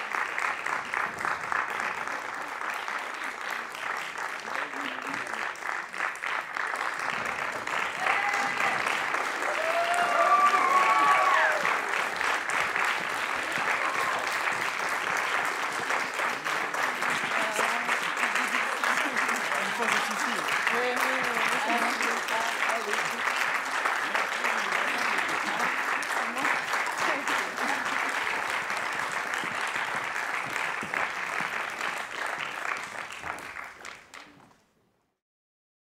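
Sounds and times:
audience applauding: 0.0 - 34.8
people cheering: 6.8 - 34.4.

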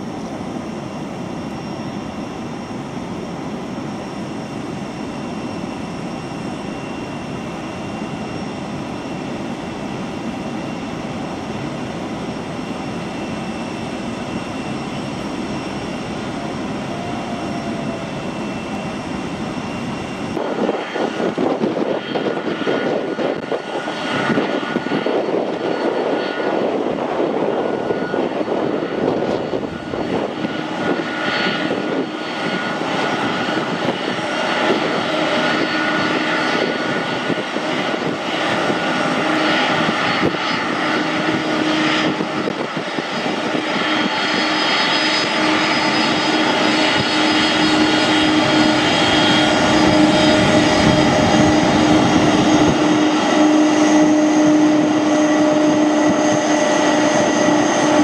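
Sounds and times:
jet engines idling: 0.0 - 58.0.

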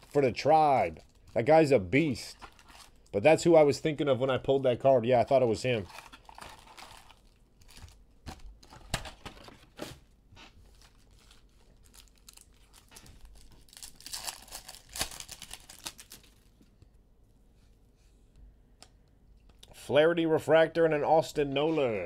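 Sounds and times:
wrapper crinkling and tearing: 0.0 - 3.1, 5.6 - 9.8, 10.4 - 16.6.

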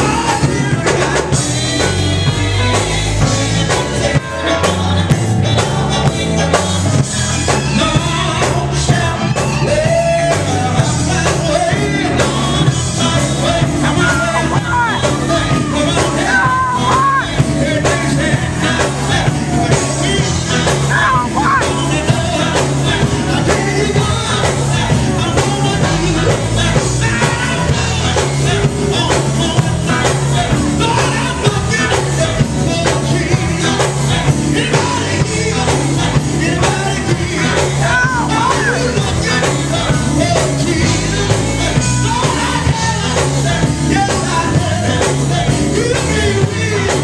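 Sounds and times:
backing vocalists singing: 0.0 - 47.0
electric guitar: 0.0 - 47.0
keyboard: 0.0 - 47.0
lead singer: 0.0 - 47.0
steady beat: 10.4 - 47.0.

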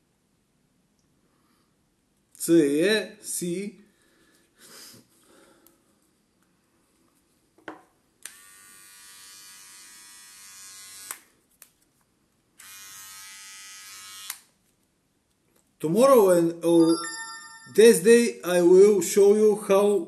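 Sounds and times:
electric trimmer buzzing: 8.2 - 11.2, 12.6 - 14.5.

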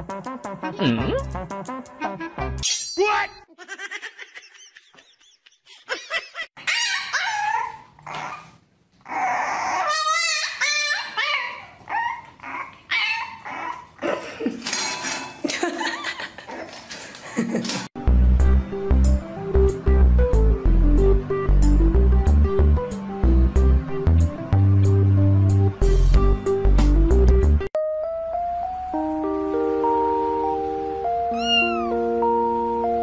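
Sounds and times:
puppy whining and barking: 6.6 - 14.0, 31.2 - 32.1.

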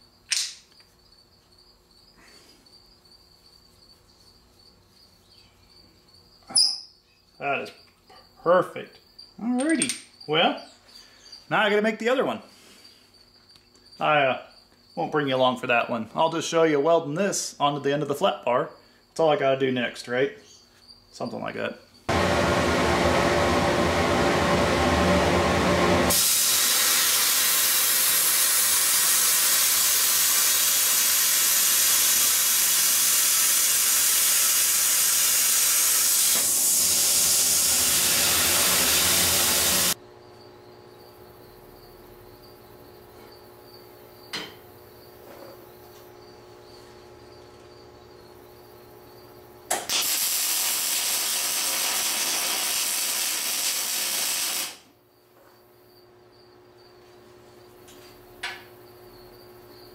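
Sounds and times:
single click: 0.3 - 0.6
welder crackling: 22.1 - 40.0, 49.7 - 54.9
plasma cutter hissing: 26.1 - 40.0, 49.7 - 54.8.

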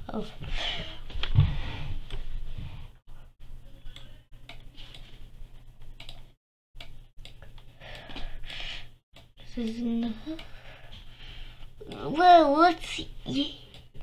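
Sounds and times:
computer mouse clicks: 5.9 - 8.2.

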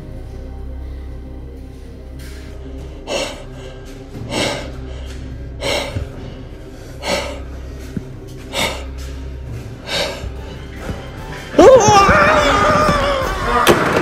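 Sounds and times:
low droning music: 0.0 - 14.0
person breathing heavily: 0.8 - 11.3.

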